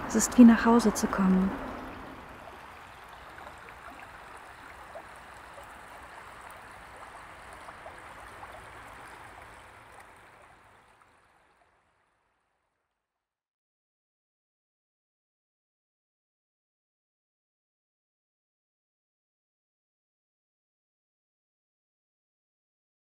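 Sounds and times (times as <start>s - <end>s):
outdoor rushing water-like noise: 0.0s - 12.9s.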